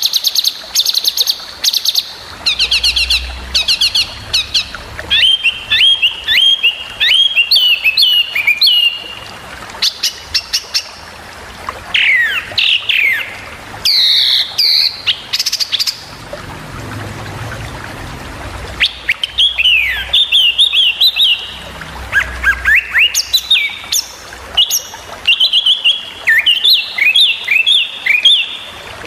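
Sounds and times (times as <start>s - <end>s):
songbirds chirping and whistling: 0.9s - 9.2s, 12.0s - 16.0s, 18.8s - 21.6s.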